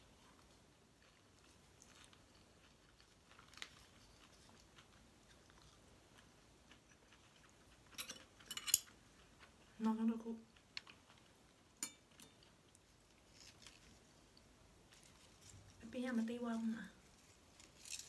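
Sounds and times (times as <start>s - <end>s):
chewing leaves: 0.9s - 8.0s.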